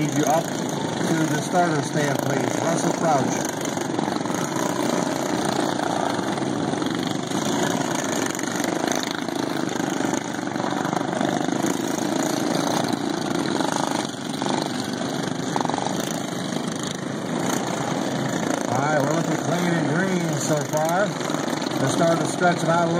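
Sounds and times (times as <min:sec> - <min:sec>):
lawn mower engines racing: 0:00.0 - 0:22.9.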